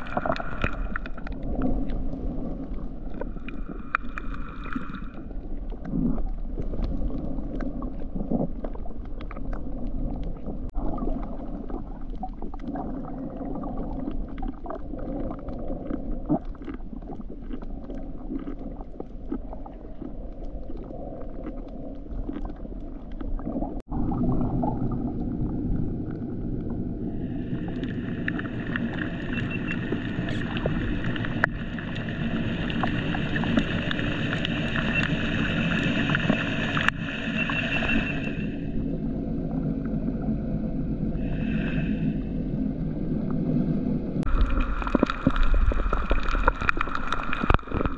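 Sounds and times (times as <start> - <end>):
low underwater rumble: 0.0 - 47.9
bright rushing noise: 27.3 - 39.0
sharp clicks and crackles: 27.6 - 37.0, 44.3 - 47.9.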